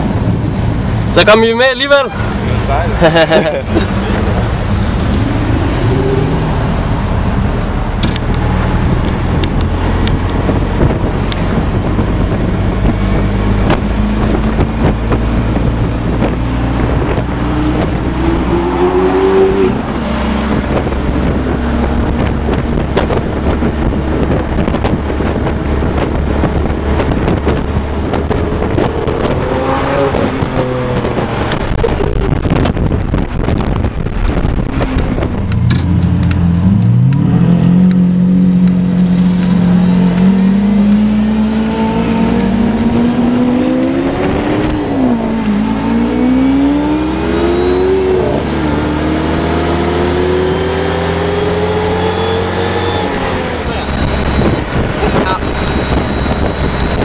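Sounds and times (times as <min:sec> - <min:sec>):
traffic engine and road drone: 0:00.0 - 0:57.0
engine revving up: 0:03.8 - 0:07.3, 0:12.2 - 0:32.5, 0:35.7 - 0:57.0.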